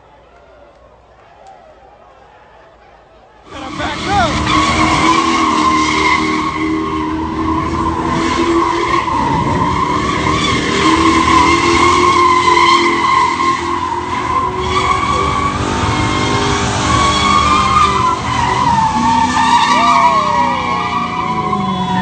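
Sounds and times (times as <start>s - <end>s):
car engine at high revs: 3.5s - 22.0s
tyres squealing: 3.5s - 22.0s.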